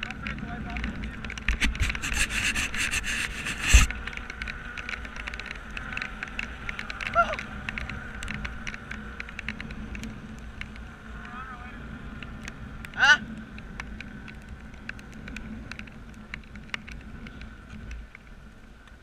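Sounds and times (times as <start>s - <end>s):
dirt bike engines: 0.0s - 19.0s
wind noise on microphone: 0.0s - 19.0s.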